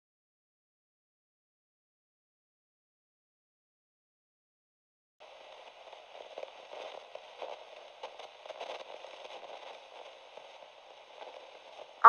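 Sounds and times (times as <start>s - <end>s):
crackling radio static: 5.2s - 12.0s.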